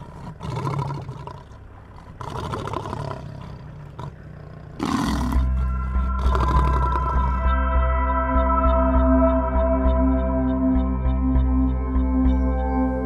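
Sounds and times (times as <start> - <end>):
lion roaring: 0.0 - 7.4
music: 5.4 - 13.0.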